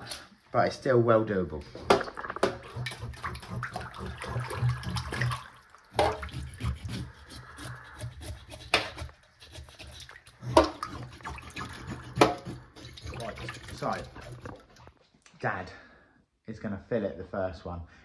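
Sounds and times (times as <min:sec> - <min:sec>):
water sloshing in a metal sink: 0:01.7 - 0:15.0
knife scraping fish scales: 0:06.0 - 0:14.8.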